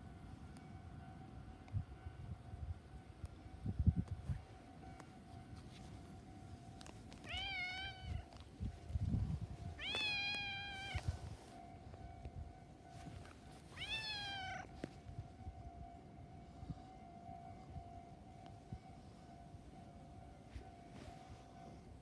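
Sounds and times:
cat meowing: 7.2 - 8.3, 9.8 - 11.0, 13.8 - 14.7.

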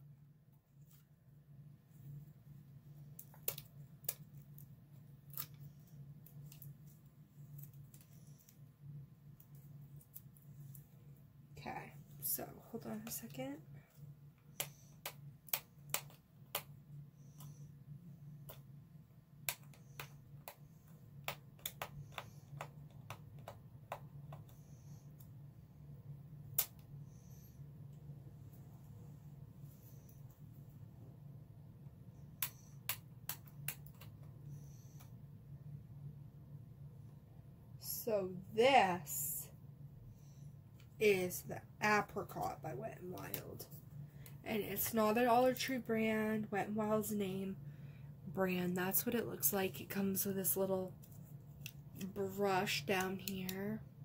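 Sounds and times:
low hum: 0.0 - 54.0
packaging clicks and snips: 19.4 - 24.7.

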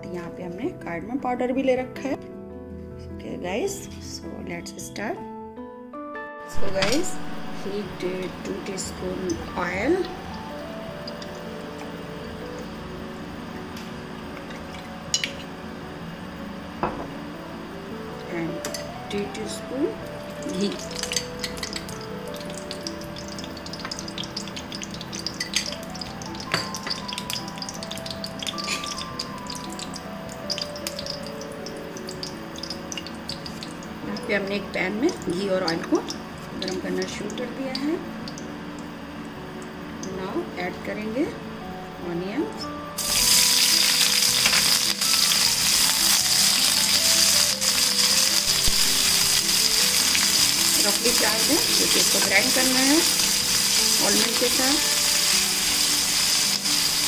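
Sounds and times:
oil crackling in a frying pan: 20.2 - 38.9, 43.0 - 57.0.

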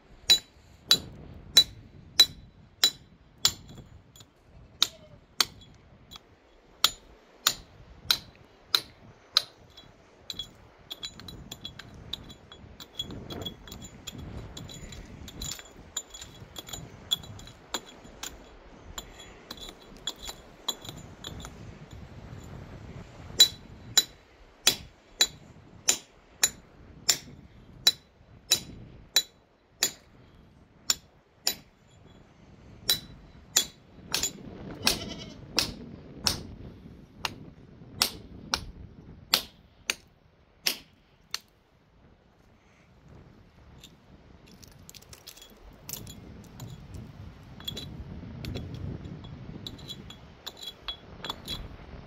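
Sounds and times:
sharp ringing clinks: 9.4 - 22.6, 44.9 - 51.7
sheep and goats bleating: 34.8 - 35.4.

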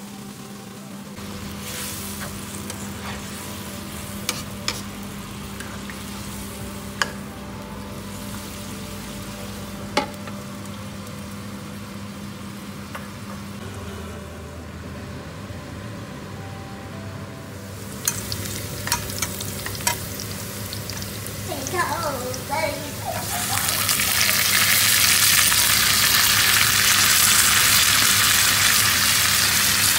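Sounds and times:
curry simmering and sizzling: 17.9 - 29.9.

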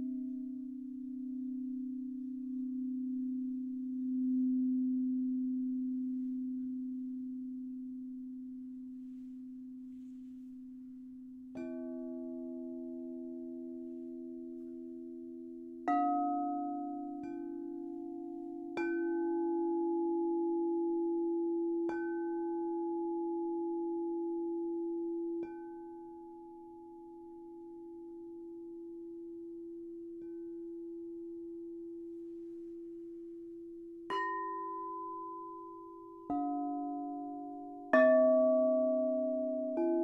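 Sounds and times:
singing bowls ringing: 34.1 - 40.0.

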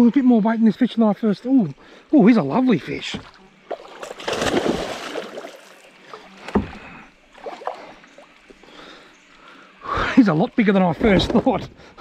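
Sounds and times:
fish splashing and thrashing: 3.0 - 8.6.

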